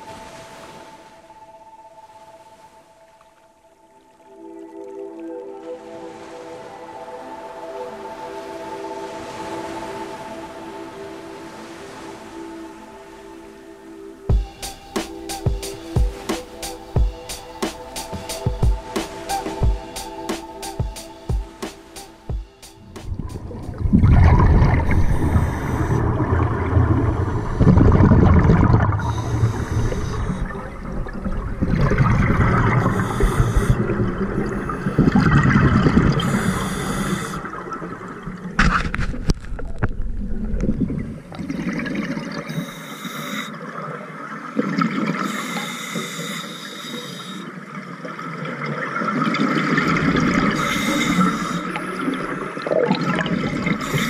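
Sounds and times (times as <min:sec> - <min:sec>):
bubbles gurgling underwater: 0:23.1 - 0:36.6, 0:48.0 - 0:50.6, 0:51.8 - 0:54.0
breathing through a regulator: 0:24.7 - 0:26.3, 0:28.9 - 0:30.9, 0:32.5 - 0:37.7, 0:42.4 - 0:43.8, 0:45.1 - 0:47.7, 0:50.4 - 0:52.6, 0:53.6 - 0:54.0.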